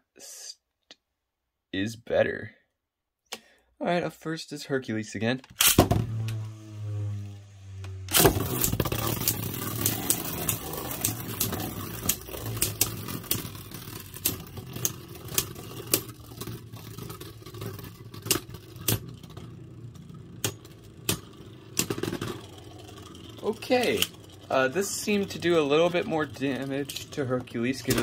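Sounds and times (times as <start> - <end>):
spinning top launcher rip: 5.5 - 19.4, 20.4 - 28.0
spinning tops clacking together: 8.1 - 19.4
spinning tops rattling: 8.1 - 28.0.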